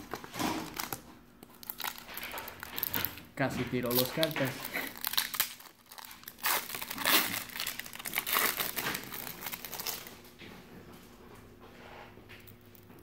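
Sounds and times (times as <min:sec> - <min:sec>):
foil wrapper tearing and crinkling: 0:00.0 - 0:10.2.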